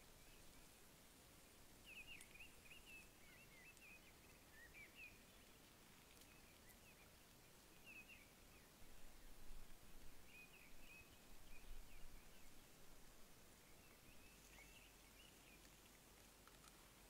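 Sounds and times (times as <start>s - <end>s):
birds chirping: 1.7s - 17.0s
faint clicks: 1.9s - 4.4s, 5.3s - 7.5s, 13.9s - 17.0s.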